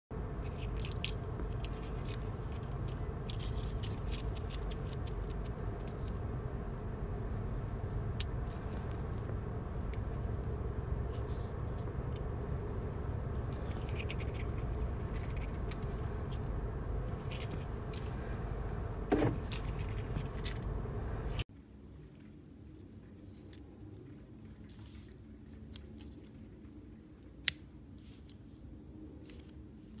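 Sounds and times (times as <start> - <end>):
car interior hum: 0.2 - 21.4.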